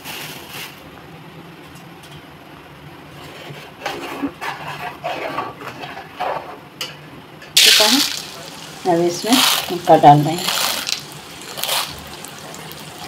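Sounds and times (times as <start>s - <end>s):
loud irregular sounds: 7.6s - 13.0s
oil sizzling in a pan: 7.6s - 13.0s.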